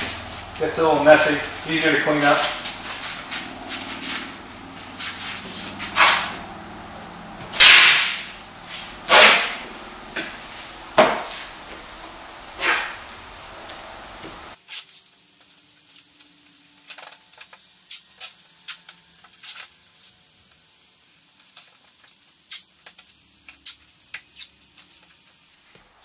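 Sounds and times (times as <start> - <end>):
masking tape tearing off roll: 5.0 - 6.4, 7.5 - 10.5, 14.6 - 15.2.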